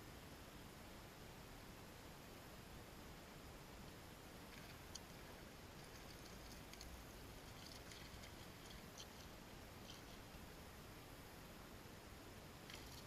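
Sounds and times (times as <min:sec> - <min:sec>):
faint outdoor background hiss: 0:00.0 - 0:13.0
faint ticks: 0:03.8 - 0:10.4, 0:12.6 - 0:13.0.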